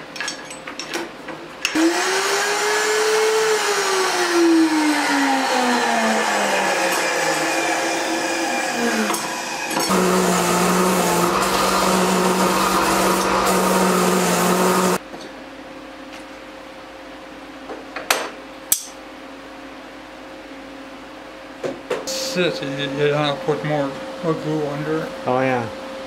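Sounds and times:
high-speed power tool motor: 1.7s - 15.0s
motor running at lower pitch: 1.8s - 15.0s.

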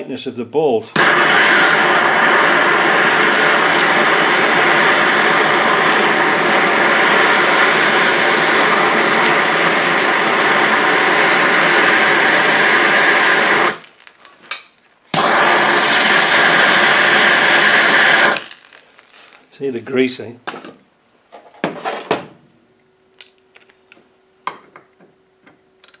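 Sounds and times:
gas torch flame rushing: 0.9s - 14.0s, 15.1s - 18.8s.

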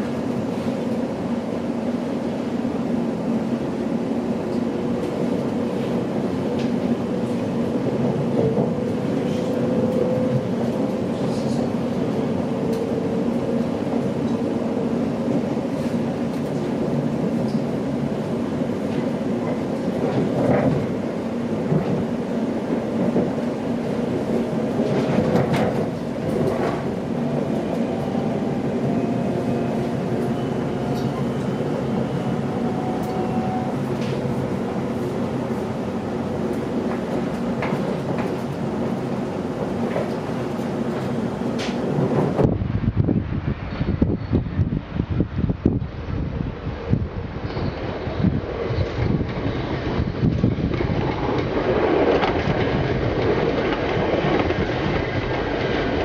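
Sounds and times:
train wheels rumbling on track: 0.0s - 56.0s
sharp clicks from track: 39.9s - 41.8s.

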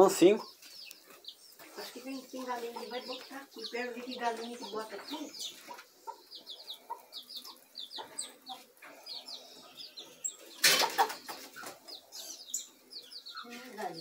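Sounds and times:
chickens clucking: 0.0s - 14.0s
wire-mesh coop rattling: 10.4s - 12.0s.

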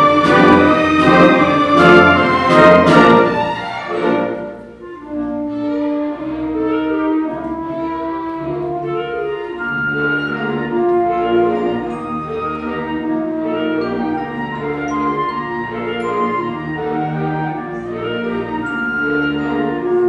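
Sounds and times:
orchestra playing a waltz: 0.0s - 20.0s.

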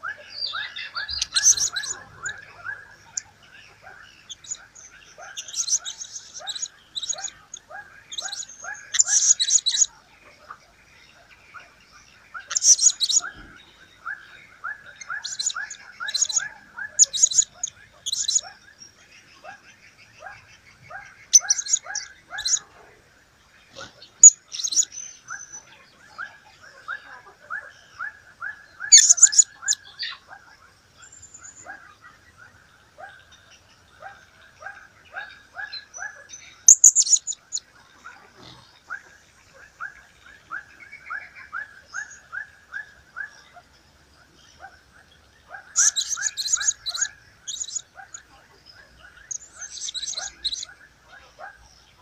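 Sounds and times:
high-pitched parrot chirps: 0.4s - 3.4s, 4.2s - 9.9s, 12.4s - 13.4s, 14.9s - 18.6s, 21.3s - 22.6s, 24.2s - 25.6s, 28.8s - 30.2s, 35.6s - 37.6s, 45.7s - 48.1s, 49.3s - 50.7s.

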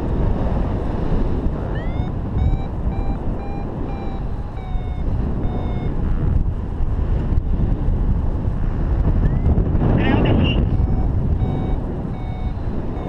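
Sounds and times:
wind rushing over microphone: 0.0s - 13.0s
variometer beeping: 1.5s - 6.8s, 9.0s - 13.0s.

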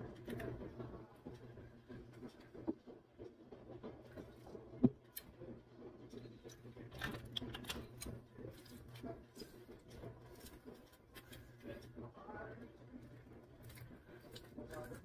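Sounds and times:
shrimp shells being peeled: 6.5s - 12.0s.

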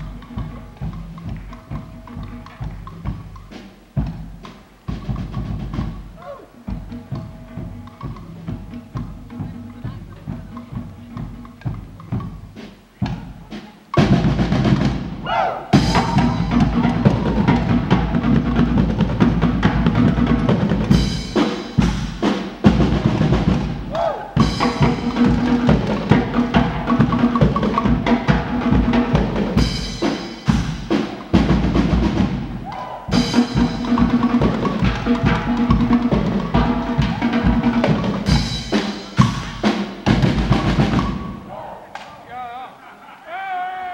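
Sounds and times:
brass and drum band playing: 0.0s - 42.6s.

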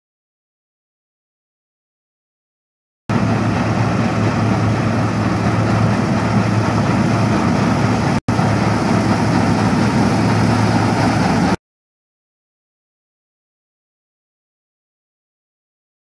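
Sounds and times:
combine harvester running: 3.1s - 11.6s.

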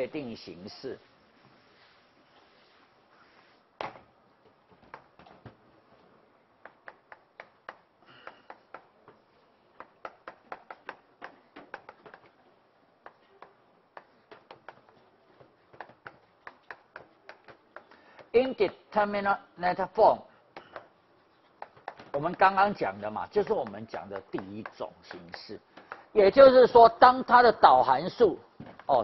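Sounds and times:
chalk tapping on chalkboard: 6.6s - 9.2s, 9.8s - 12.4s, 13.0s - 19.0s, 20.5s - 26.5s.

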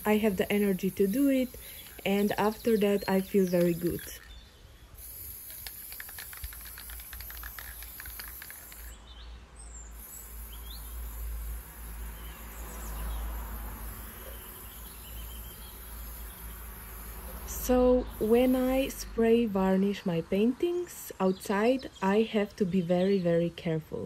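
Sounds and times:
spray can hissing: 0.0s - 4.2s, 5.0s - 9.0s, 10.0s - 19.0s
spray can ball rattling: 0.0s - 4.3s, 5.0s - 9.0s, 10.0s - 12.3s, 13.8s - 17.4s, 18.2s - 18.8s.

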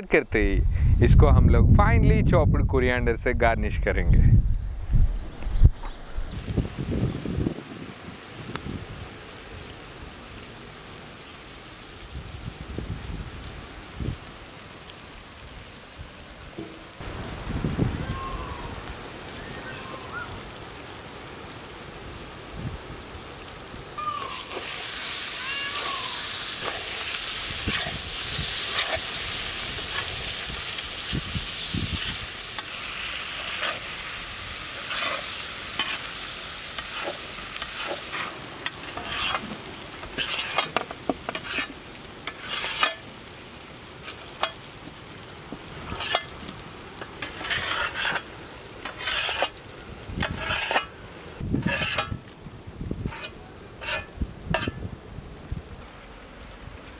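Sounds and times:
prawns sizzling on iron griddle: 5.3s - 56.9s
metal spatula scraping: 26.6s - 30.2s, 32.0s - 34.0s, 34.8s - 36.2s, 36.8s - 39.5s, 40.2s - 43.0s, 45.9s - 46.3s, 47.2s - 49.6s, 50.2s - 50.9s, 51.6s - 52.2s, 53.0s - 54.8s.

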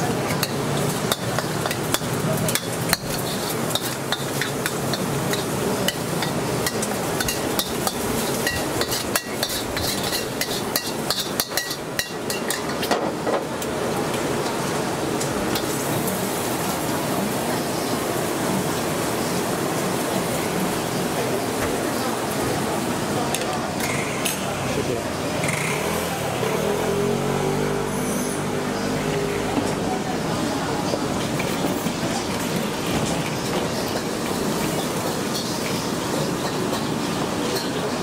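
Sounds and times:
metal spatula scraping a wok: 0.4s - 12.8s.

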